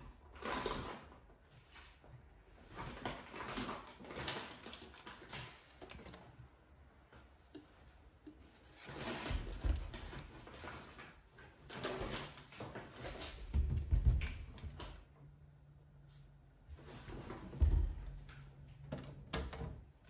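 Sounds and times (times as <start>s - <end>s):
groceries rustling and clicking: 0.1s - 15.3s.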